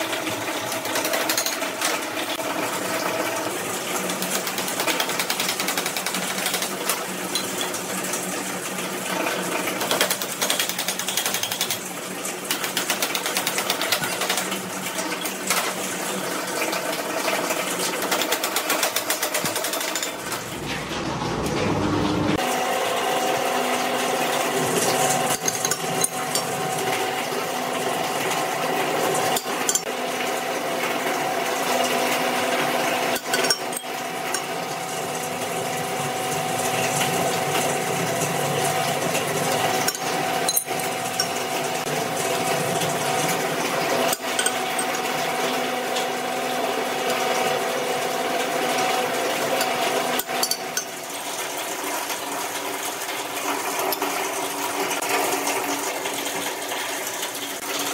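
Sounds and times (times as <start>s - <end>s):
drill press motor hum: 18.0s - 30.0s.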